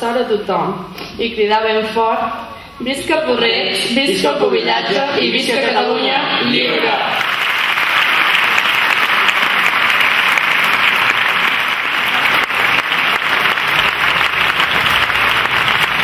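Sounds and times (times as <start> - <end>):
audience applauding: 7.2 - 16.0.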